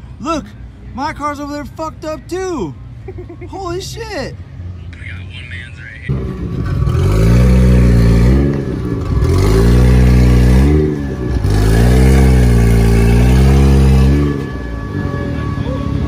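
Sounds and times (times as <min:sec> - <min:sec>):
car engine revving: 0:06.0 - 0:16.0.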